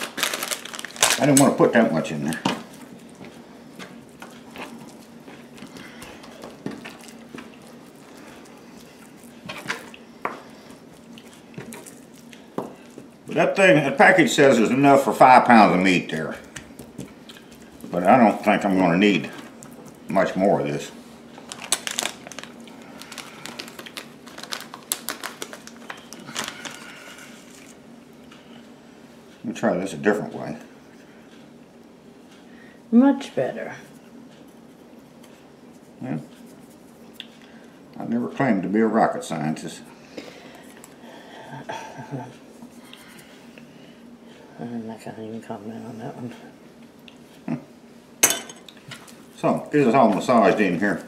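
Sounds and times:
plastic packet rustling: 0:00.0 - 0:03.2, 0:21.4 - 0:27.8
faint hum: 0:00.0 - 0:51.0.

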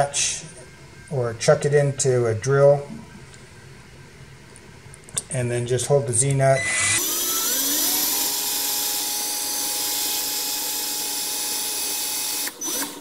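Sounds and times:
power drill spinning threaded rod: 0:06.6 - 0:13.0.

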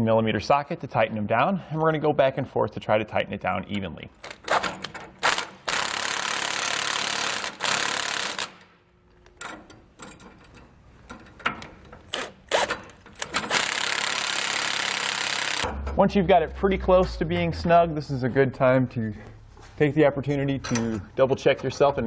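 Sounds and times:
power wrench running down nuts: 0:05.2 - 0:08.7, 0:12.1 - 0:15.8.

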